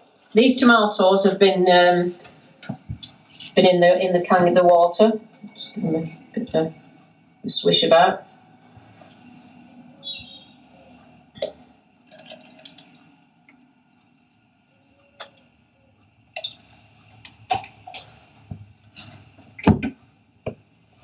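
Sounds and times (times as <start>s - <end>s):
plastic cups clicking and knocking: 11.4s - 13.0s
water sloshing and splashing: 11.4s - 13.1s, 16.3s - 19.3s.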